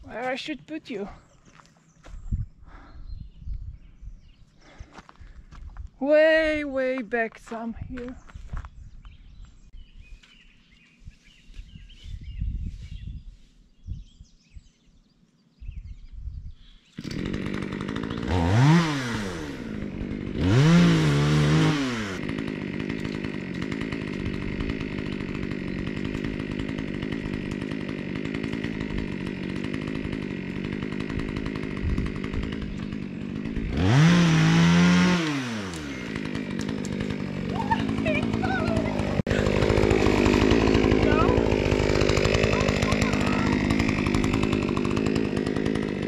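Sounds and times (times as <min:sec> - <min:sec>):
chainsaw engine revving and idling: 0:17.0 - 0:46.0.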